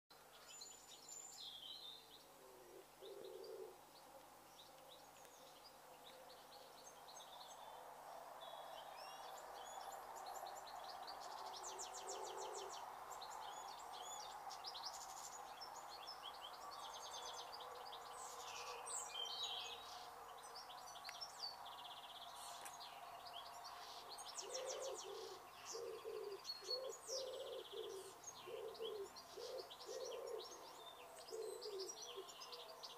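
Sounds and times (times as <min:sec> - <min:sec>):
small birds chirping: 0:00.1 - 0:32.9
dove cooing: 0:02.3 - 0:03.8, 0:11.7 - 0:12.7, 0:24.4 - 0:30.6, 0:31.2 - 0:32.8.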